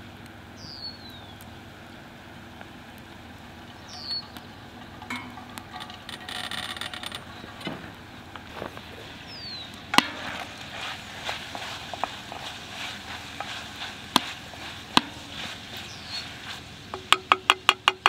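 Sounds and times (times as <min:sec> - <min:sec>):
spoon scraping and tapping pot: 0:04.3 - 0:06.3, 0:10.0 - 0:16.3, 0:16.9 - 0:18.0
wooden spoon knocking on pot: 0:13.4 - 0:15.3, 0:16.9 - 0:18.0.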